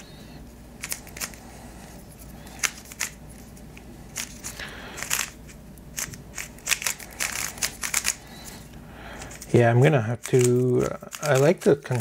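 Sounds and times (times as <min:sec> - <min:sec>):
puzzle cube clicking: 0:04.2 - 0:08.2, 0:10.2 - 0:12.0.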